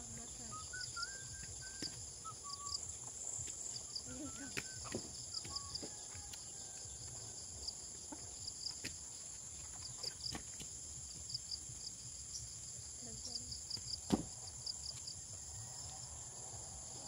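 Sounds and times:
short repeated insect chirps: 0:00.0 - 0:06.1
insects high-pitched drone: 0:00.0 - 0:06.4.

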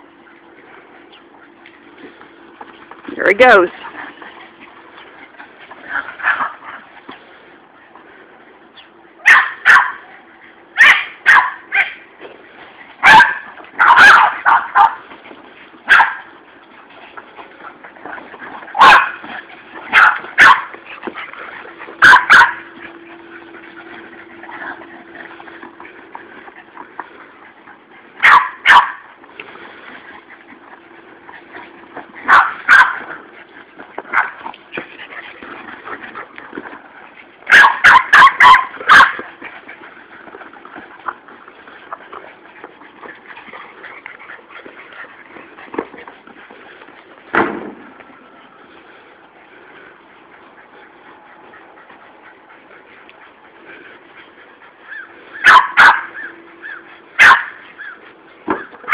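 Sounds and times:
dog barking: 0:09.2 - 0:10.0, 0:10.8 - 0:12.0, 0:13.0 - 0:15.0, 0:15.9 - 0:16.2, 0:18.8 - 0:19.2, 0:19.9 - 0:20.7, 0:22.0 - 0:22.6, 0:28.2 - 0:29.0, 0:32.3 - 0:33.0, 0:37.5 - 0:39.2, 0:54.9 - 0:58.0.

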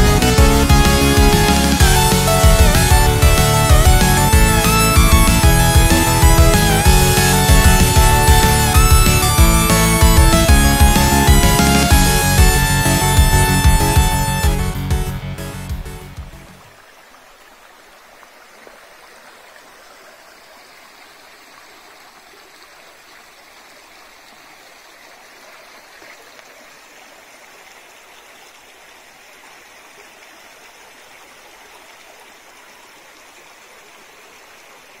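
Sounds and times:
background music: 0:00.0 - 0:16.6
stream flowing over stones: 0:16.5 - 0:35.0.

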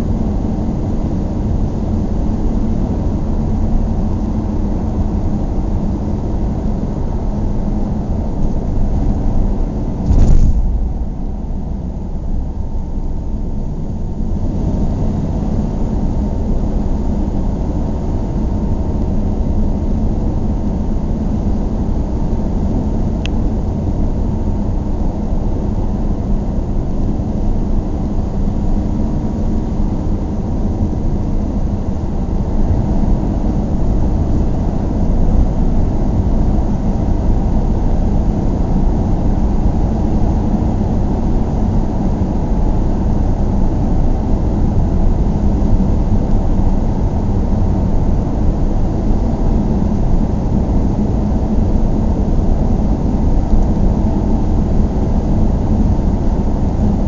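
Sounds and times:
car engine and tyre rumble: 0:00.0 - 0:57.0
loud thump: 0:10.0 - 0:11.9.

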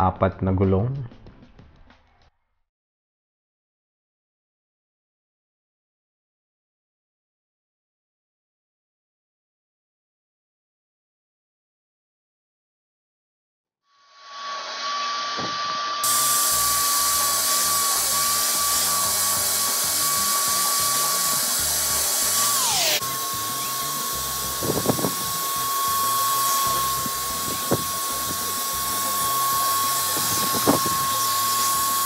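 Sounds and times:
vacuum cleaner running: 0:14.2 - 0:32.0.

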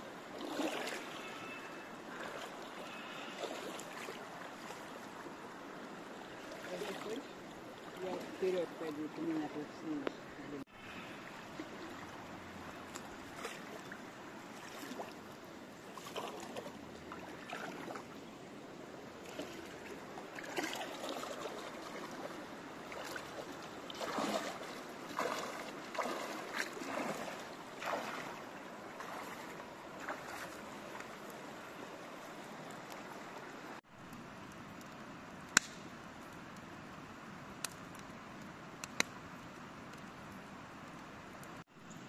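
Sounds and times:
wading splashes: 0:00.0 - 0:18.4, 0:19.1 - 0:33.6
creek rushing: 0:00.0 - 0:33.8.

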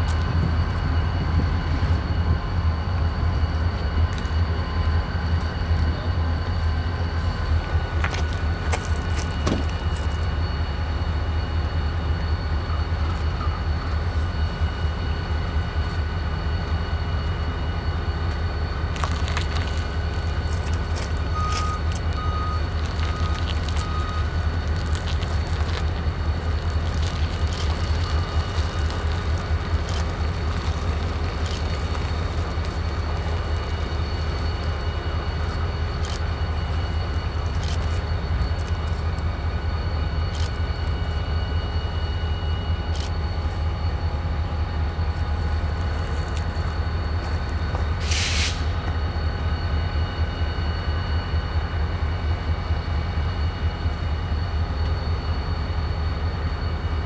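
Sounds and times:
diesel locomotives idling: 0:00.0 - 0:57.0
faint steady whines: 0:00.0 - 0:57.0
brief hiss: 0:48.0 - 0:48.8.

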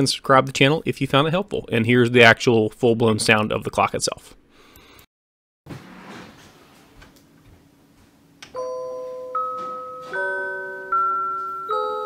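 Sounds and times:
wall clock music-box tune: 0:08.5 - 0:12.0.

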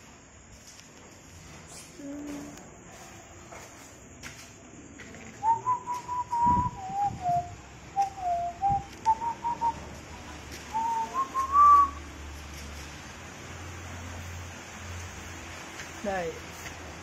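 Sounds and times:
person whistling a tune: 0:05.4 - 0:09.9, 0:10.7 - 0:12.0.

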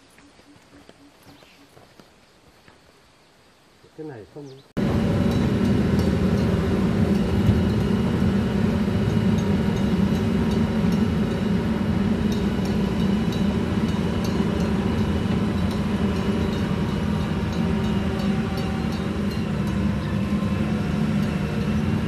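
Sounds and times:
diesel engine drone: 0:04.8 - 0:22.0
track links clanking: 0:04.8 - 0:22.0.

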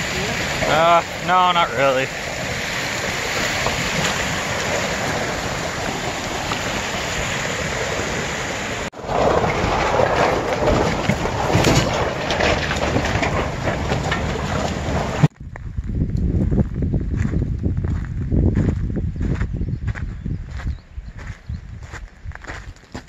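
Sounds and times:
creek water rushing over rocks: 0:00.0 - 0:15.3
rough rumble with crackles: 0:00.0 - 0:23.0.

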